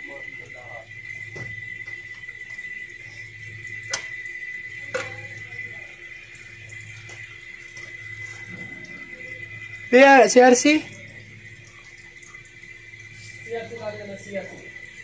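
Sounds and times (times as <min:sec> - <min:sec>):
oil trickling and dripping: 0:00.0 - 0:15.0
low hum: 0:07.6 - 0:10.0
thin high tone: 0:07.6 - 0:15.0.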